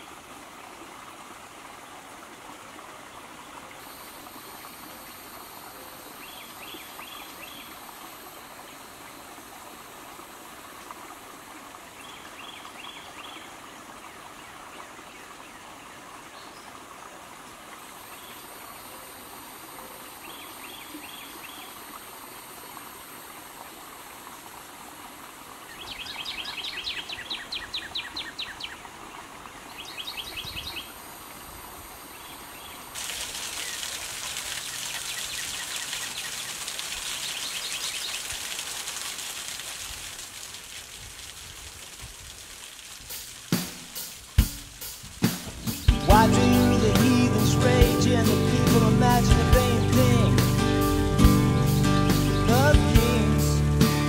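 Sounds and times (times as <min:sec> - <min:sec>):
water flowing: 0:00.0 - 0:54.0
birds calling: 0:45.2 - 0:54.0.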